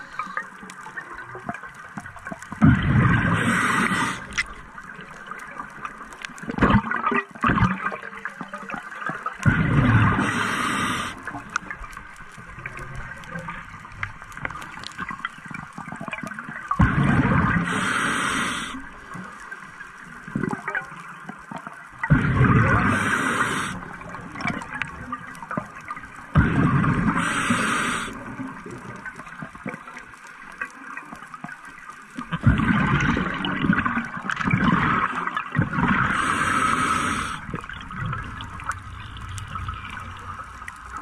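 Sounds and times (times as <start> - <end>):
bubbles gurgling: 1.2 - 11.9, 12.5 - 19.2, 21.9 - 29.8, 32.2 - 41.0
regulator hiss: 3.1 - 4.4, 9.8 - 11.4, 17.4 - 19.0, 22.6 - 23.9, 26.5 - 28.4, 36.0 - 37.8.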